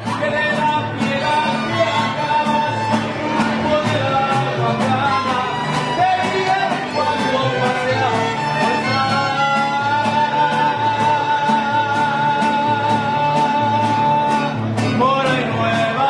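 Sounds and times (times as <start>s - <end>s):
guitars strumming: 0.0s - 16.0s
violins playing melody: 1.5s - 9.7s.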